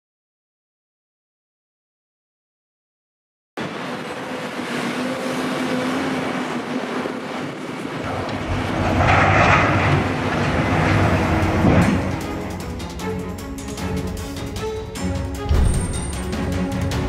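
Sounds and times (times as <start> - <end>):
construction machinery running: 3.6 - 17.0.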